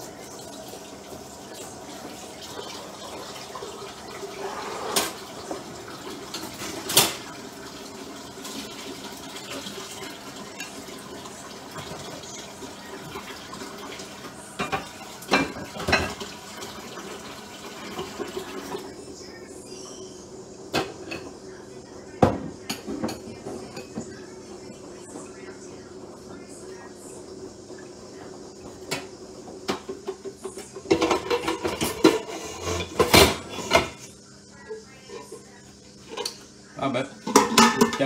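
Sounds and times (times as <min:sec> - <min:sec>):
dishes clinking and clattering: 0:04.4 - 0:07.8, 0:13.0 - 0:17.1, 0:22.2 - 0:24.3, 0:28.6 - 0:34.1, 0:37.2 - 0:38.0.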